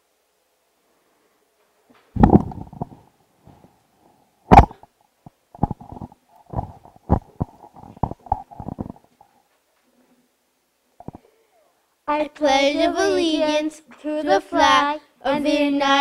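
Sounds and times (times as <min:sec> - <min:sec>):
handling thumps on a microphone: 0:02.2 - 0:03.7, 0:04.5 - 0:04.9, 0:05.6 - 0:09.0.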